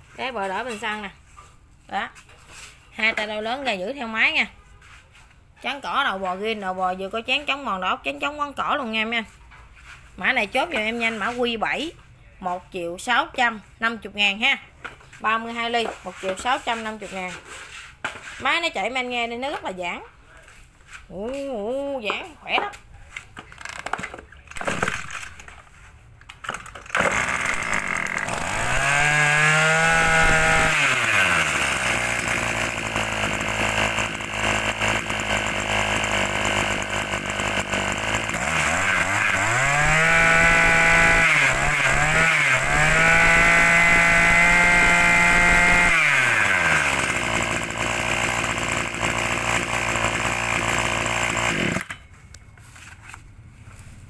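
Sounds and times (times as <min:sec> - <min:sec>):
brush cutter engine revving: 0:24.5 - 0:25.6, 0:26.5 - 0:52.0.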